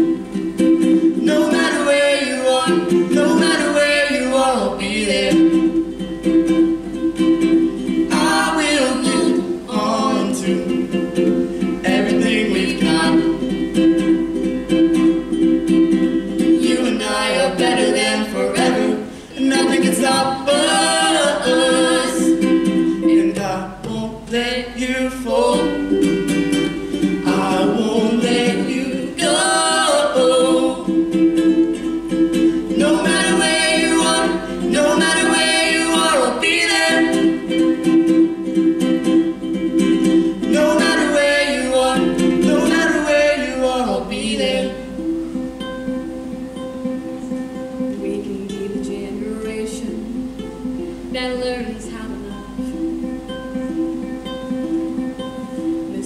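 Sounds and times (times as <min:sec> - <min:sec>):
ukulele: 0:00.0 - 0:56.0
man and woman singing duet: 0:01.1 - 0:05.8, 0:08.1 - 0:13.7, 0:16.4 - 0:31.4, 0:32.3 - 0:38.0, 0:40.0 - 0:45.1.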